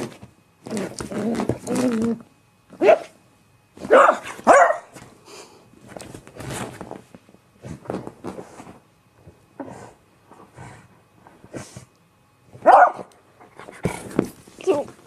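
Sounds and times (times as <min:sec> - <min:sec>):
dog barking: 0:02.8 - 0:03.2, 0:03.9 - 0:04.9, 0:12.6 - 0:13.1.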